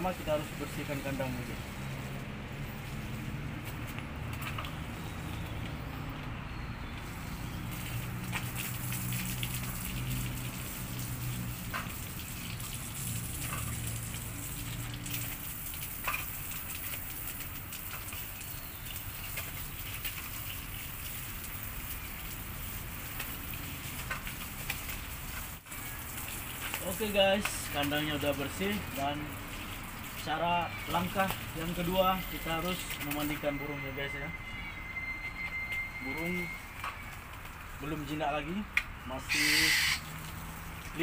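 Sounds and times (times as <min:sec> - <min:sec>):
hose water spraying and splashing: 0:00.0 - 0:41.0
water ticking on wire mesh: 0:06.9 - 0:33.6, 0:36.2 - 0:41.0.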